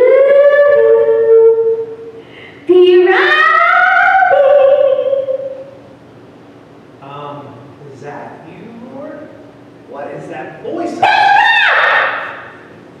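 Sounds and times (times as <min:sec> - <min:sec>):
person singing long vocal calls: 0:00.0 - 0:05.8.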